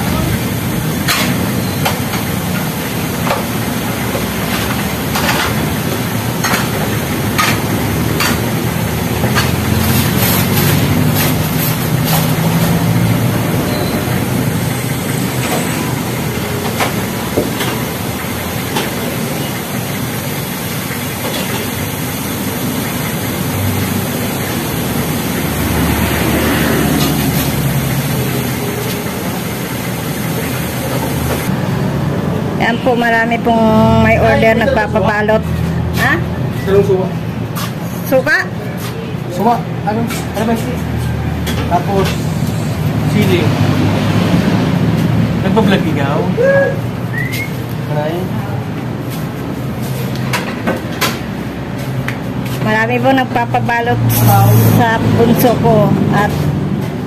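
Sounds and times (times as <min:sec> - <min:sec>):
street traffic rumble: 0:00.0 - 0:57.0.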